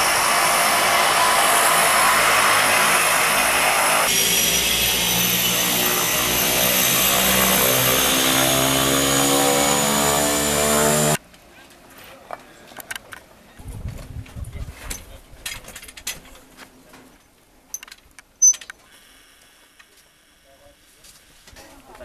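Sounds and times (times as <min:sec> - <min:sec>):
propeller hum: 0:00.0 - 0:11.2
turbine whine: 0:00.0 - 0:11.2.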